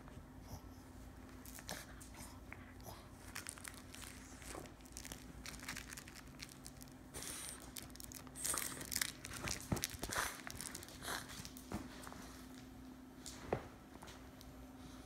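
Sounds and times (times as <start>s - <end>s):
fabric toy rustling and crinkling: 3.2s - 12.1s.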